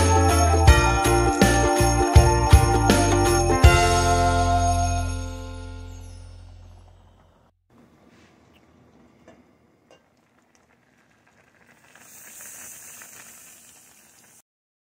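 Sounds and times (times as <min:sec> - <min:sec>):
pot of liquid boiling: 0:08.5 - 0:14.4.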